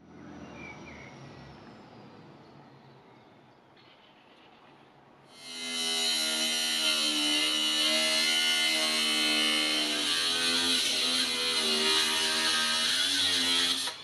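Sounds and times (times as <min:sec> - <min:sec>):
angle grinder grinding steel: 0:05.3 - 0:14.0.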